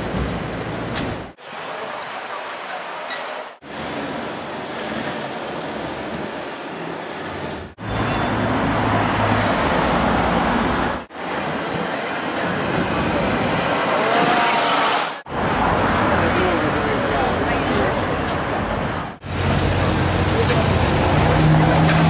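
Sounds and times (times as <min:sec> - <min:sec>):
vehicles passing: 0:00.0 - 0:22.0.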